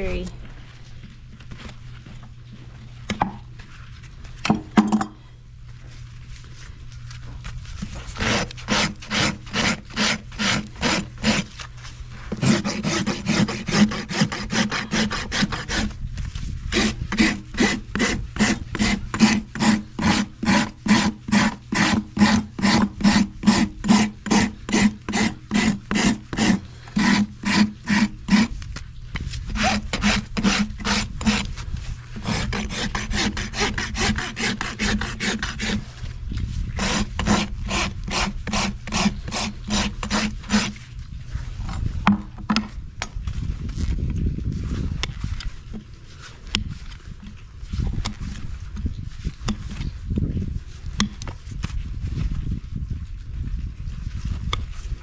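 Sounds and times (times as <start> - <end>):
hoof rasp filing: 8.1 - 11.6, 12.3 - 16.0, 16.7 - 28.6, 29.5 - 31.6, 32.2 - 35.9, 36.8 - 40.8.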